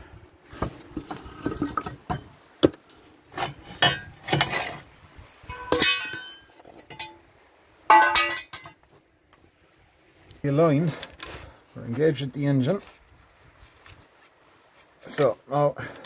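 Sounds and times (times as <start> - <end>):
ringing metal clank: 5.5 - 7.2, 7.9 - 8.8
metal clinks and knocks: 5.5 - 7.3, 7.9 - 8.8.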